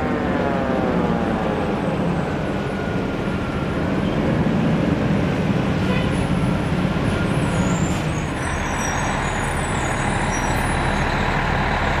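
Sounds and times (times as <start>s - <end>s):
diesel engine running: 6.4s - 12.0s.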